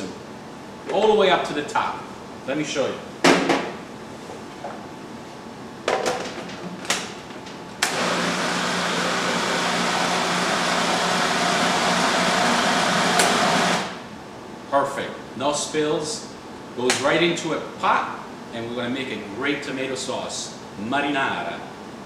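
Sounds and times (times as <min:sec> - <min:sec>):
food processor motor humming: 0:07.8 - 0:14.0.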